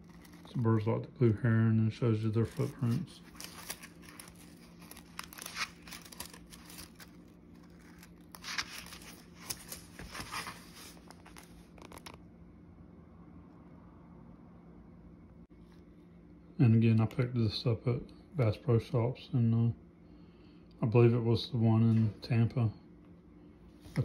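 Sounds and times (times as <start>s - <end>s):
book pages rustling: 0.0s - 0.9s, 2.4s - 12.2s
faint low hum: 0.0s - 24.0s.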